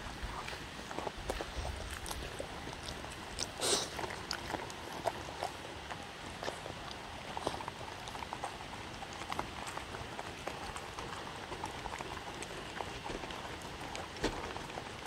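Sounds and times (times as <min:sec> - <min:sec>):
dogs chewing and lapping: 0:00.0 - 0:15.0.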